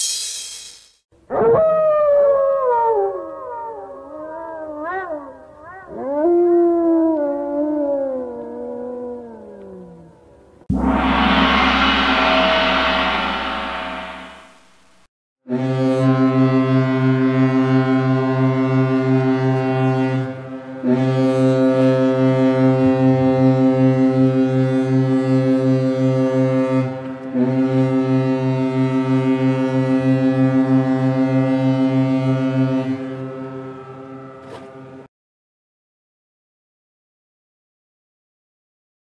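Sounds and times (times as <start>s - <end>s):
ship horn blasts: 10.7s - 14.6s, 15.5s - 35.1s.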